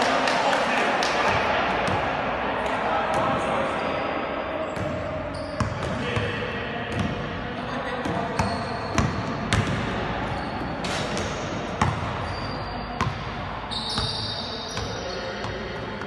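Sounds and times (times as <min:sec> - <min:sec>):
basketball bouncing on court floor: 0:04.8 - 0:07.3, 0:08.0 - 0:15.9.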